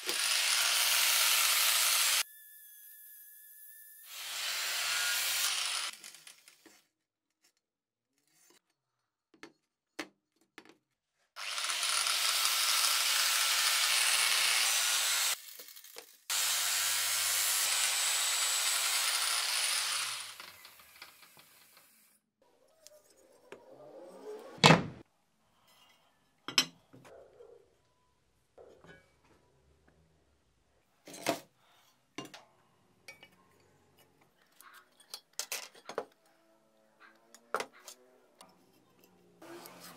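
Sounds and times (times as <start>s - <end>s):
power tool working metal: 0.0s - 6.4s, 11.4s - 15.6s, 16.3s - 22.1s.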